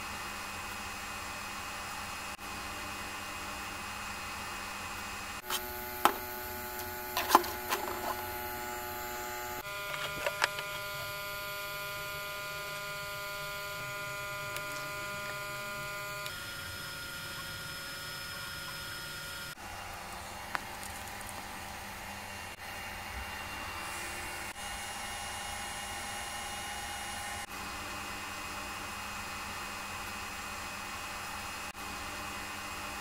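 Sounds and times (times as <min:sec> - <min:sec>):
printer motors and fans humming: 0:00.0 - 0:33.0.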